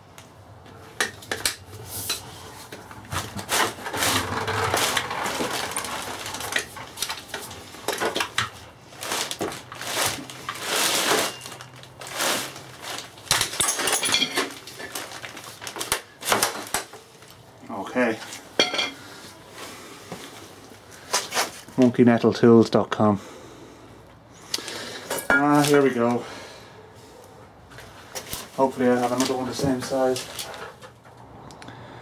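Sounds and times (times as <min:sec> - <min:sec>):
scraping and rustling: 0:01.8 - 0:17.4.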